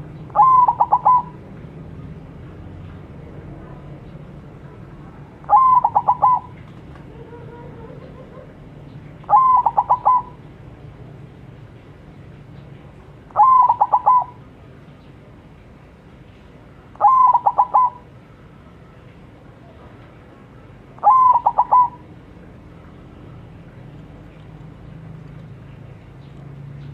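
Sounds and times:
dove cooing: 0.3s - 1.4s, 5.5s - 8.6s, 9.2s - 10.4s, 13.4s - 14.4s, 17.0s - 18.1s, 21.0s - 22.1s.

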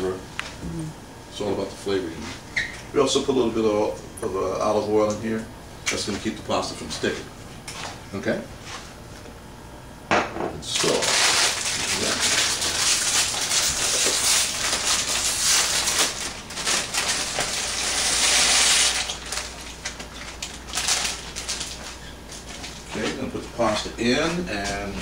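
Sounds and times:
plastic bag crinkling and tearing: 10.7s - 23.1s.

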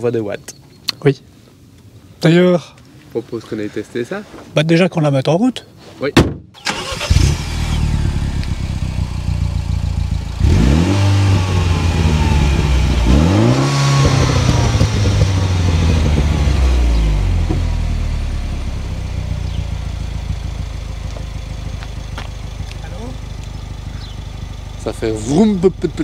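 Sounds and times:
car engine idling and revving: 6.6s - 26.0s.

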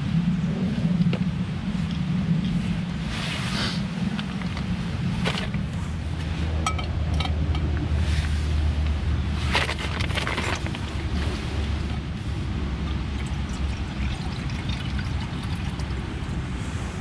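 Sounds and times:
steady low rumble: 0.0s - 17.0s
metal pot and mug clinking: 6.6s - 7.7s.

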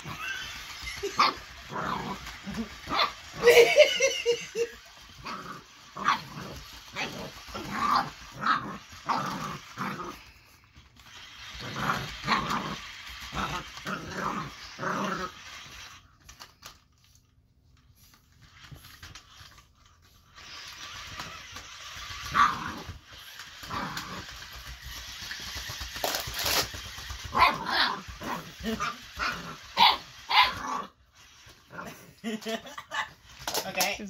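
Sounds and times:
puppy barking in high yaps: 27.3s - 30.8s.

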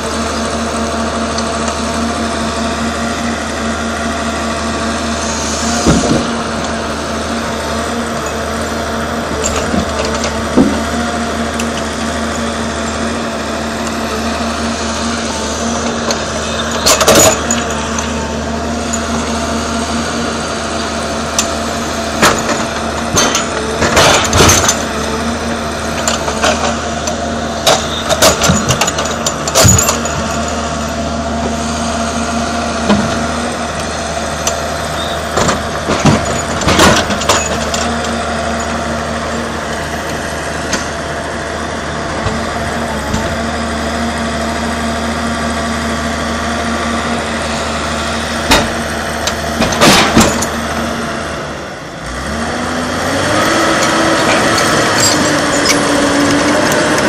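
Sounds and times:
diesel engine running: 0.0s - 57.0s
logs knocking and clattering: 9.4s - 10.9s.

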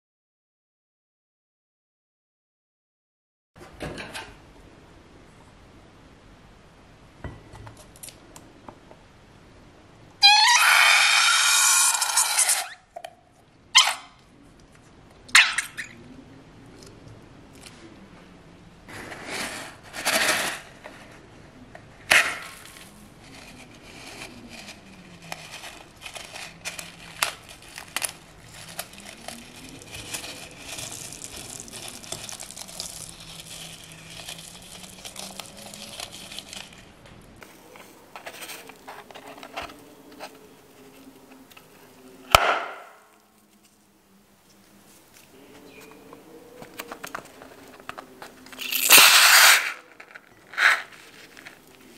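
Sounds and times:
foam beads rattling into bowl: 25.3s - 36.8s, 48.6s - 49.8s
sharp snap: 42.3s - 43.0s.

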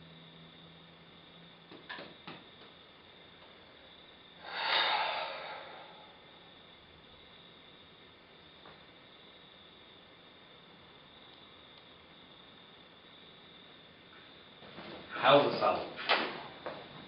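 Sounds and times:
man sighing: 4.4s - 6.3s.

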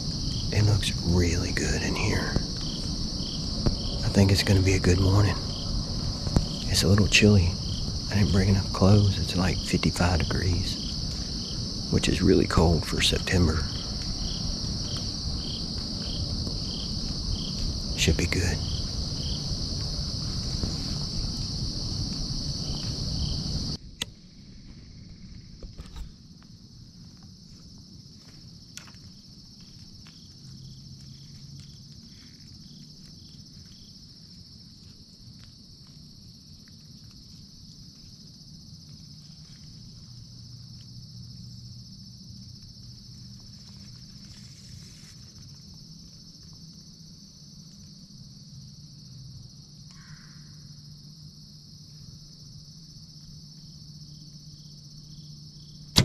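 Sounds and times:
distant highway traffic hum: 0.0s - 23.8s
crickets and insects chirping: 0.0s - 56.0s.

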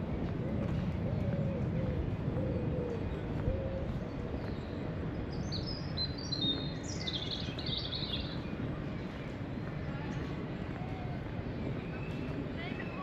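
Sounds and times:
low background noise: 0.0s - 13.0s
small songbird singing: 4.4s - 8.6s.

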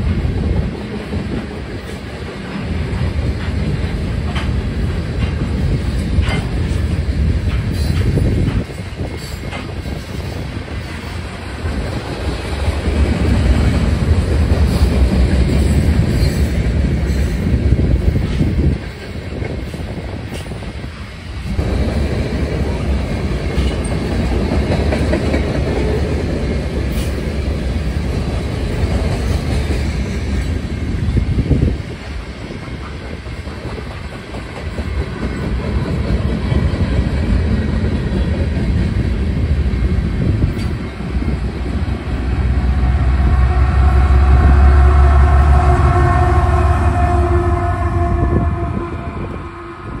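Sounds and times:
train wheels rumbling on rail: 0.0s - 50.0s
wheels clacking over rail joints: 0.9s - 17.5s.

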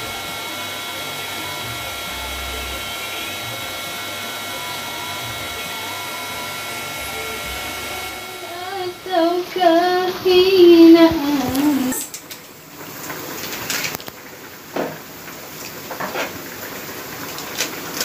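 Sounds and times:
high voice singing: 0.0s - 12.2s.

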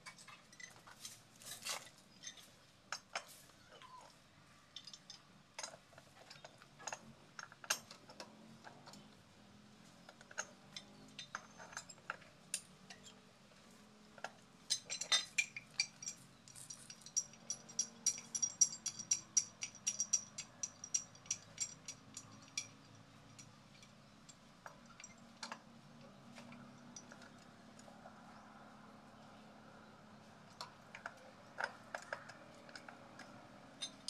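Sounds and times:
metal tool clicking on pipe fittings: 10.1s - 13.2s, 14.2s - 25.6s, 30.5s - 34.0s.

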